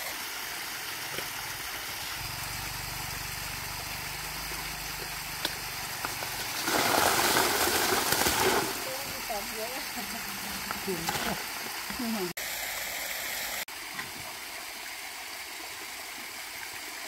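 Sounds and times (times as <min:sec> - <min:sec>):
stream rushing: 0:00.0 - 0:16.6
small engine running: 0:00.6 - 0:13.6.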